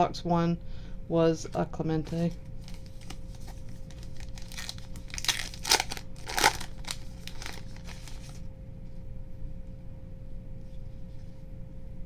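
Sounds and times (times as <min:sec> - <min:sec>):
foil wrapper crinkling: 0:02.0 - 0:08.5.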